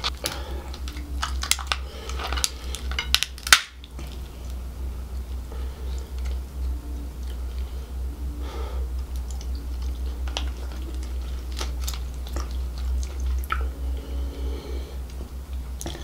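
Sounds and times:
shell cracking and clicking: 0:00.0 - 0:04.6
steady low hum: 0:00.0 - 0:16.0.

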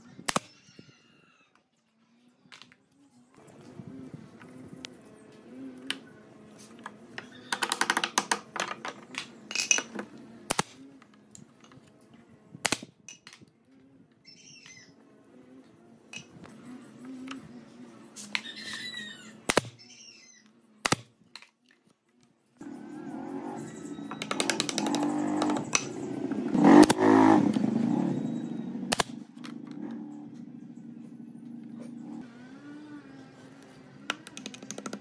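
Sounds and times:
birds chirping: 0:00.0 - 0:21.3, 0:22.5 - 0:35.0
nail gun firing into wood: 0:00.3 - 0:00.5, 0:10.5 - 0:10.8, 0:12.6 - 0:13.4, 0:19.5 - 0:19.8, 0:20.8 - 0:21.2, 0:26.7 - 0:27.1, 0:28.9 - 0:29.2.

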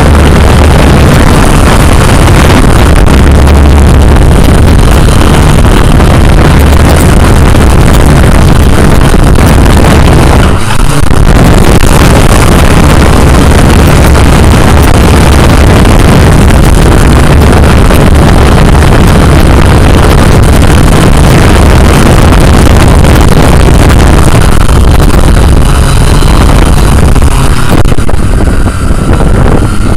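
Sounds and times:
drone motors and propellers: 0:00.0 - 0:29.9
wind buffeting microphone: 0:00.0 - 0:29.9.

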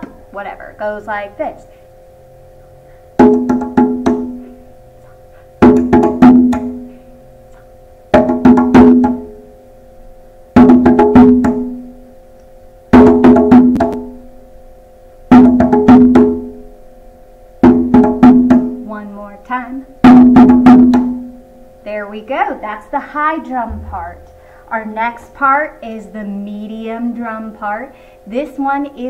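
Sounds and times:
hand drum strokes: 0:03.2 - 0:09.3, 0:23.7 - 0:24.4.

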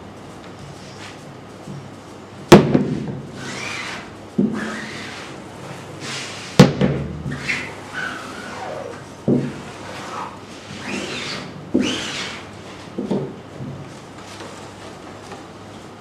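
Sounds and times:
squeegee scraping screen mesh: 0:07.3 - 0:12.5.

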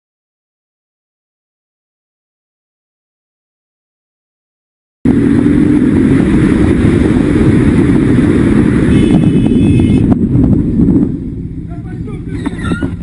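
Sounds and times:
vehicle engine and road noise: 0:05.1 - 0:13.0.

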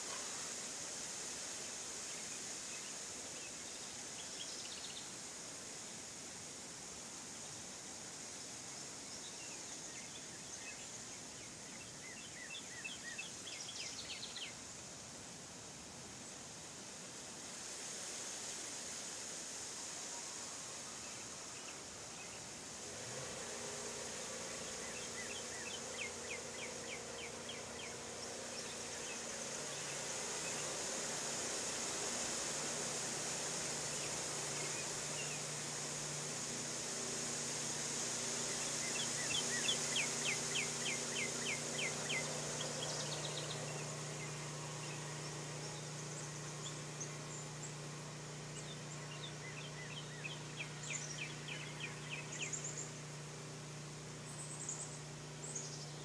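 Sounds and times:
insects droning: 0:00.0 - 0:56.0
quick insect chirps: 0:16.2 - 0:56.0.

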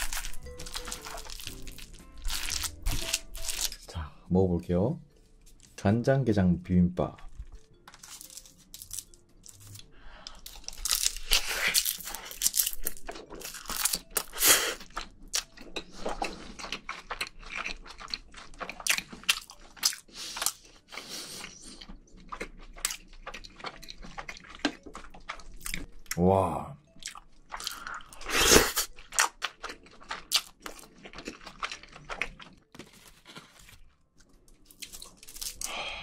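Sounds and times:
close chewing with mouth clicks: 0:09.5 - 0:26.2, 0:26.9 - 0:32.7.

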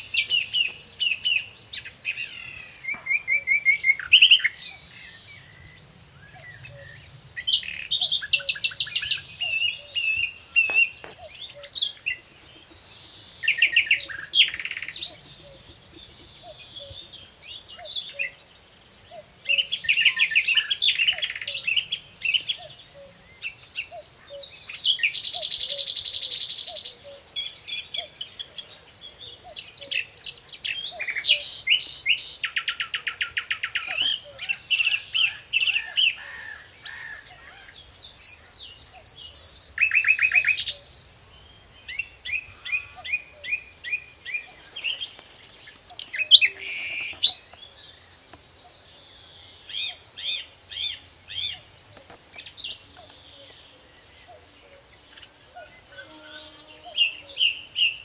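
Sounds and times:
nightingale singing: 0:00.0 - 0:58.0
faint cuckoo calling: 0:02.2 - 0:04.9, 0:07.9 - 0:37.7.

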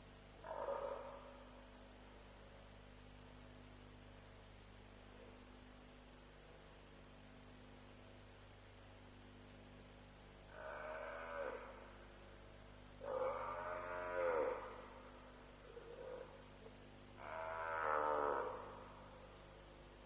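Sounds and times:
faint low hum: 0:00.0 - 0:20.0
buffalo bawling: 0:13.0 - 0:14.8.

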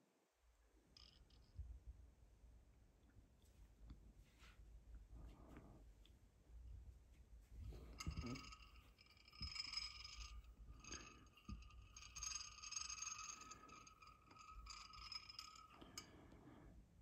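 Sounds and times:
glass tube rustling and scraping: 0:07.4 - 0:16.8.

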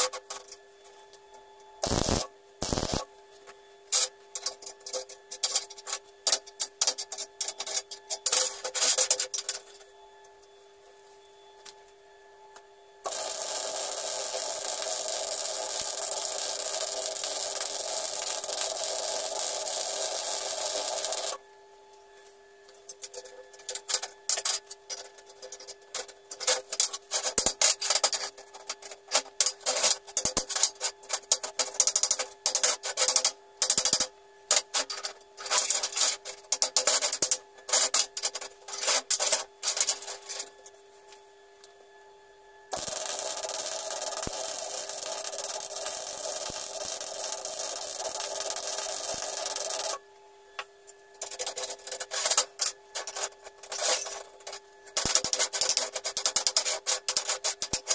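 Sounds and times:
welding arc hissing: 0:01.8 - 0:03.0, 0:13.0 - 0:21.4, 0:42.7 - 0:50.0, 0:55.0 - 0:57.9
hand tool scraping steel: 0:51.3 - 0:54.3.

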